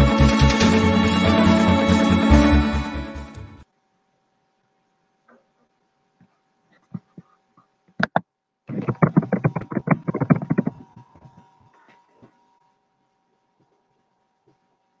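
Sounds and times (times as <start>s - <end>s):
faint electrical whine: 3.6s - 15.0s
quick tapping: 8.0s - 11.3s.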